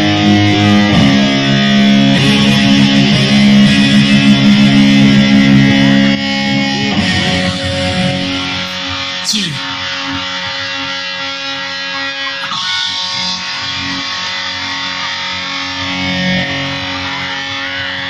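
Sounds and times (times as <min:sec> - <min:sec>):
guitar falling sweep: 0:00.0 - 0:09.8
guitar notes bending while tuning: 0:00.0 - 0:17.0
electric guitar chord ringing: 0:00.0 - 0:18.0.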